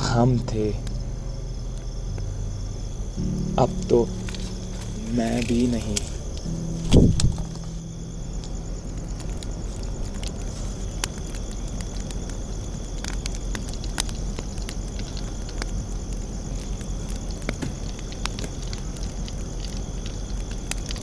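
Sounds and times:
fire pops and snaps: 0.0 - 1.0, 3.1 - 21.0
fire crackling: 0.0 - 21.0.

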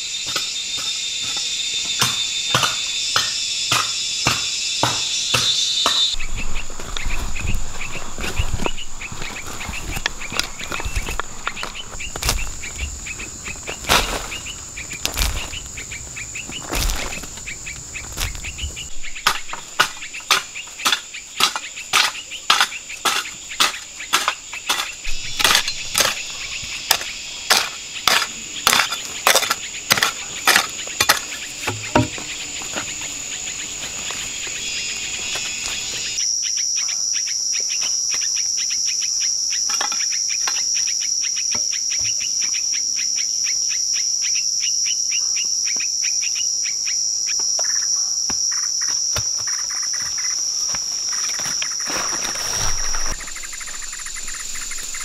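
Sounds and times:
insects droning: 0.0 - 55.0.

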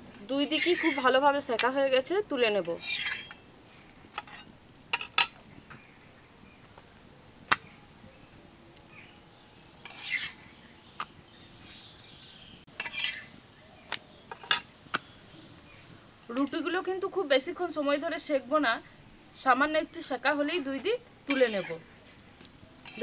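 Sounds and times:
metal utensil scraping a pan: 0.2 - 1.2, 2.6 - 3.4, 4.2 - 5.4, 9.8 - 10.4, 12.3 - 13.3, 21.3 - 21.8.

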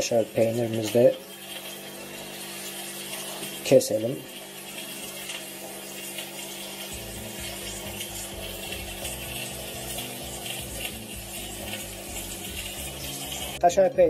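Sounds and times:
background music with bass: 7.0 - 14.0.

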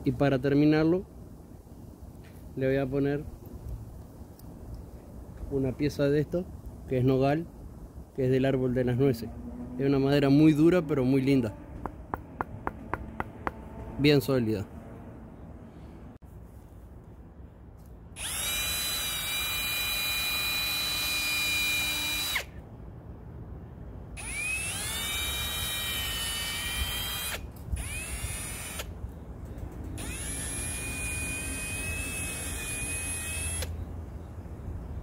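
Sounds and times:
electric drill whining: 18.2 - 22.5, 24.2 - 28.9, 30.0 - 33.7.

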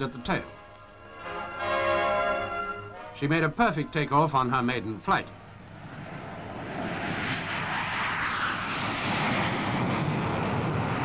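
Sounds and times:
jet engine roar: 4.9 - 11.0.

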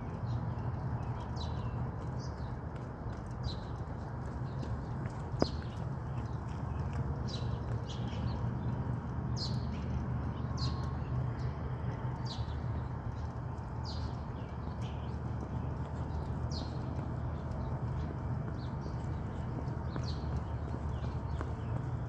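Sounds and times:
bird chirping: 0.0 - 11.5, 12.2 - 22.0
low outdoor rumble: 0.0 - 22.0.

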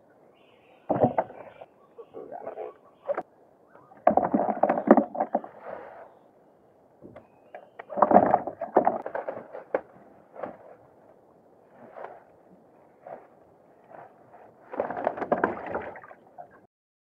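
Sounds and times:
rustling of net and leaves: 11.7 - 16.0.

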